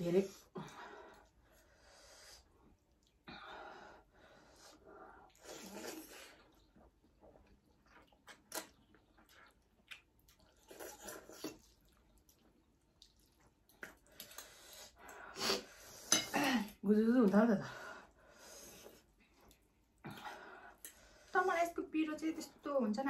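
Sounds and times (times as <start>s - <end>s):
slurping and chewing noodles: 4.0s - 16.1s.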